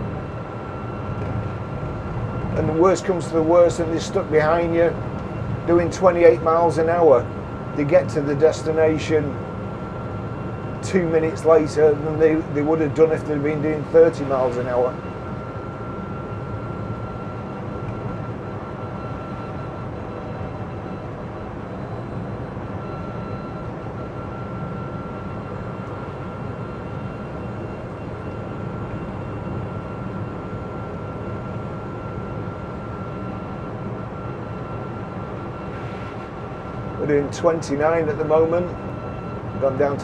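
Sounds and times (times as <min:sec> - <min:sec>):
heater fan running: 0:00.0 - 0:18.0, 0:33.6 - 0:40.0
thin steady whine: 0:00.0 - 0:40.0.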